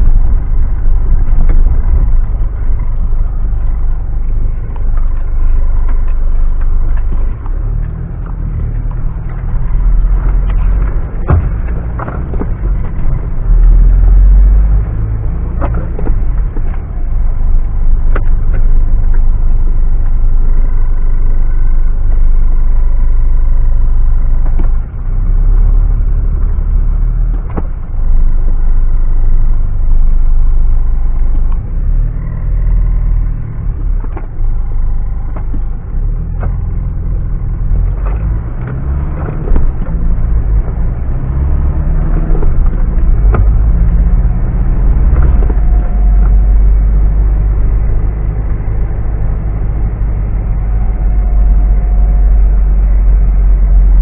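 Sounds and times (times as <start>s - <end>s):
vehicle engine rumble: 0.0s - 54.0s
sharp knocks and clunks: 10.0s - 14.1s.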